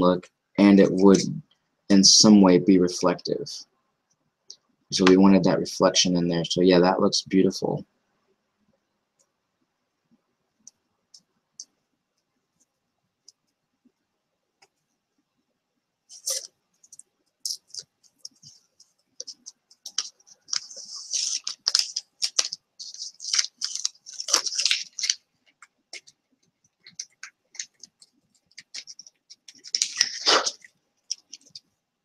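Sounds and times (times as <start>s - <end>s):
pieces clicking and scraping: 26.7s - 31.6s.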